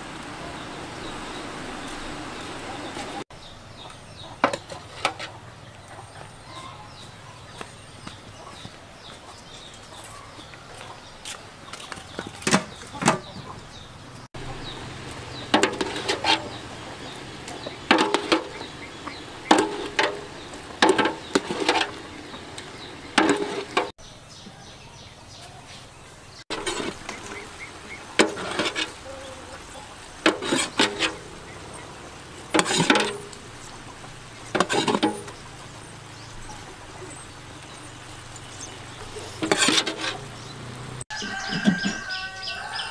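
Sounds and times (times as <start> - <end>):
metal ladle scraping pot: 4.4 - 5.4, 15.4 - 16.7, 17.5 - 23.9, 26.5 - 29.0, 30.2 - 31.4, 32.4 - 33.4, 34.5 - 35.4, 39.2 - 40.4.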